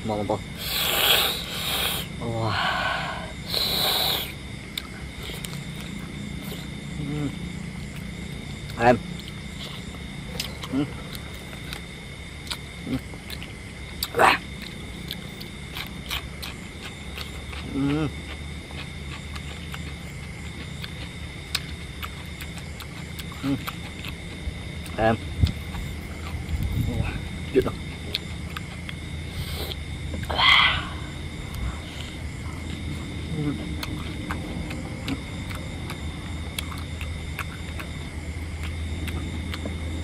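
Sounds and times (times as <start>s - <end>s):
steady high whine: 0.0s - 40.0s
person chewing: 0.5s - 2.1s, 2.8s - 30.4s, 31.1s - 40.0s
person humming: 7.0s - 7.4s, 17.7s - 18.1s.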